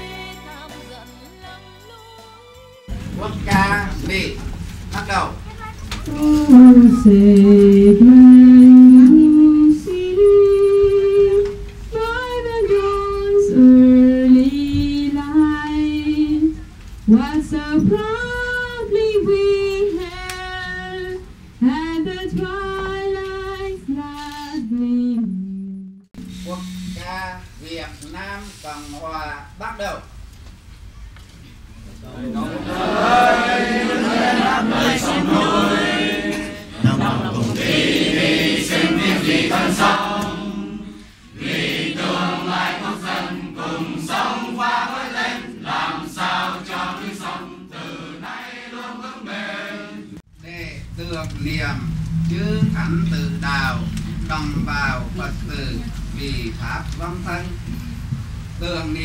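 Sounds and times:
crowd singing unaccompanied: 0.0 - 1.6, 6.1 - 24.8, 32.2 - 50.3
women chanting in long held notes: 32.4 - 50.2.

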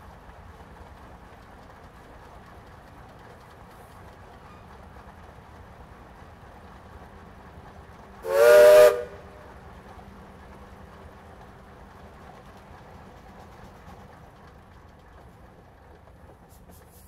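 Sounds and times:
steam whistle blast: 8.2 - 9.3.

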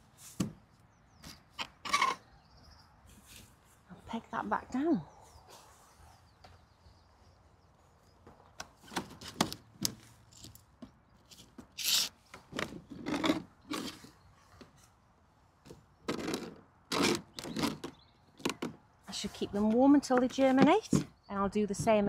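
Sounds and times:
plastic sections scraping and knocking: 11.8 - 14.8, 15.7 - 18.8.

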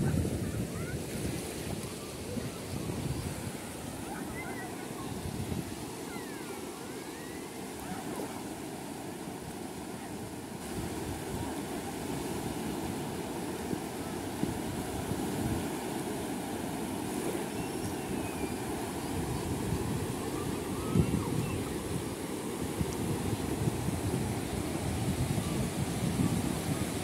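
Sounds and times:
wind buffeting microphone: 0.0 - 5.9, 10.6 - 17.2, 18.0 - 27.0
small waves lapping on sand: 0.0 - 27.0.

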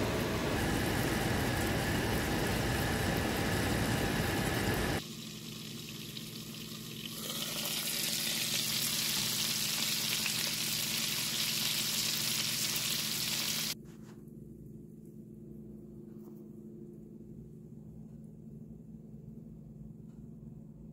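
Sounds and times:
fish sizzling in a frying pan: 5.0 - 13.8.

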